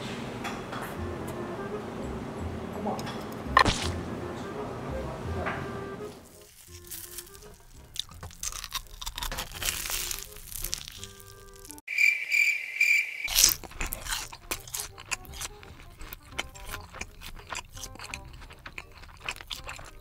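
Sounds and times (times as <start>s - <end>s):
soft background music: 0.5s - 11.8s, 13.6s - 20.0s
crunching bites and chewing: 3.6s - 3.9s, 6.3s - 11.8s, 13.3s - 20.0s
cricket chirp sound effect: 11.9s - 13.4s.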